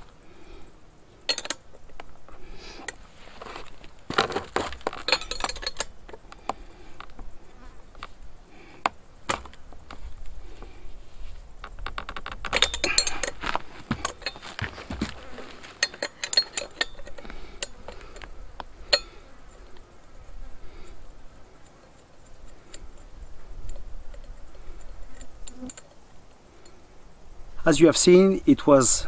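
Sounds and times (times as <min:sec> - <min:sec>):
chainsaw body knocking on wood: 0:08.8 - 0:09.6, 0:13.9 - 0:15.2
spanner clicking on nut: 0:15.8 - 0:18.2.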